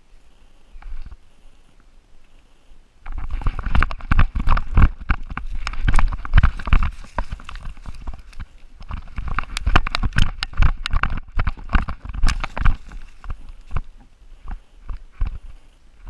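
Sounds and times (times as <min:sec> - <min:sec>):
heavy thumps and rustles: 0:03.0 - 0:15.7.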